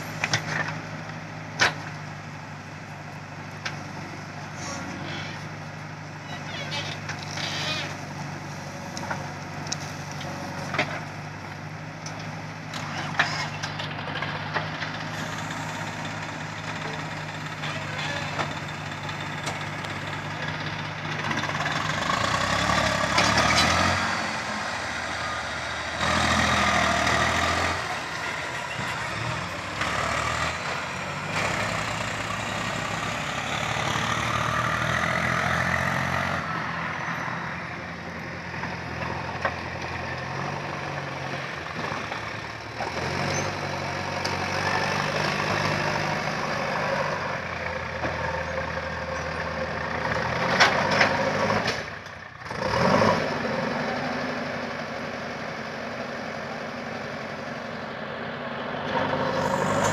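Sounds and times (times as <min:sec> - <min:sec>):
diesel engines running: 0:00.0 - 0:59.9.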